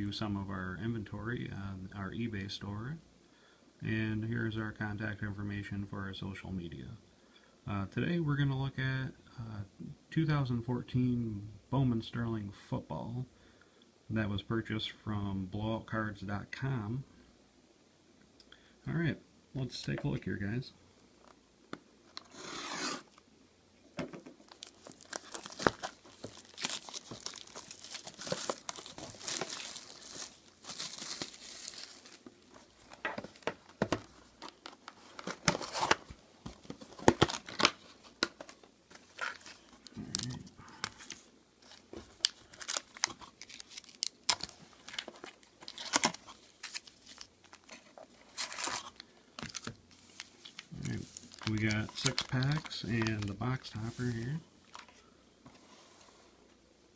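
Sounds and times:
plastic wrap crinkling and tearing: 24.4s - 33.7s, 34.3s - 55.0s.

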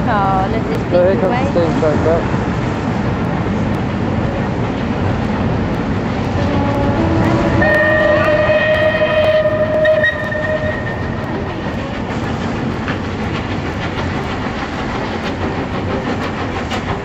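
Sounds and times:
train running: 0.0s - 17.0s
wheels clicking over rail joints: 0.0s - 17.0s
train whistle: 6.4s - 11.4s.

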